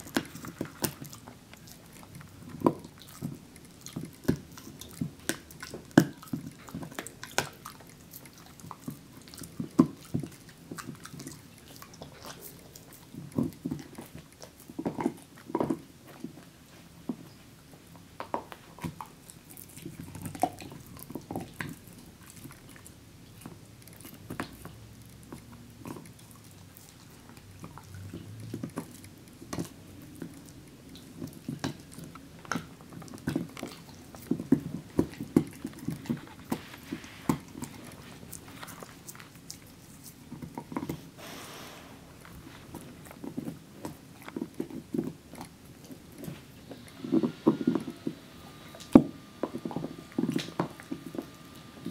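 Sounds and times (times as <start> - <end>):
dog gnawing a chew bone: 0.0 - 51.9.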